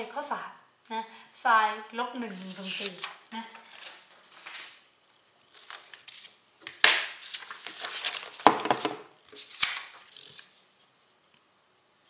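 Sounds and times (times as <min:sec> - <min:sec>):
paper rustling and crinkling: 0:02.3 - 0:11.3.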